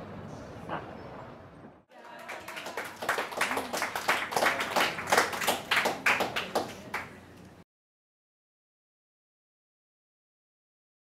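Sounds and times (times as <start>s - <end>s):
audience applauding: 1.9s - 7.2s.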